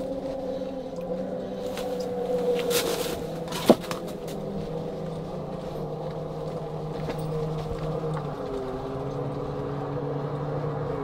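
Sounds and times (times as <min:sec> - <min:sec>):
rustling: 0:01.4 - 0:09.2.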